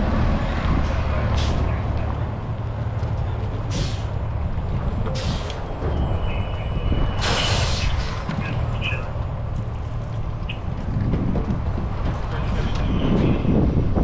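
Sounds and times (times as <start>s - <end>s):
diesel engine low rumble: 0.0s - 14.0s
air brake hisses: 7.2s - 8.0s.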